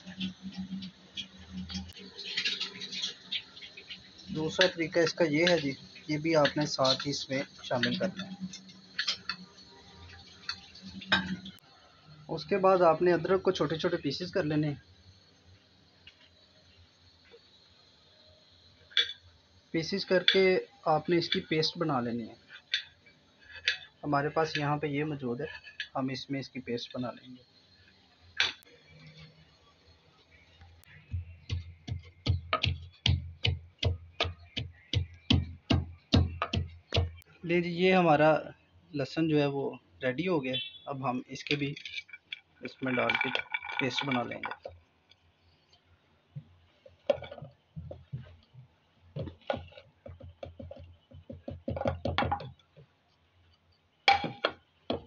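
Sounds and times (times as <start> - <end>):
pestle thudding in mortar: 31.0 - 37.2, 49.2 - 52.6, 54.1 - 55.0.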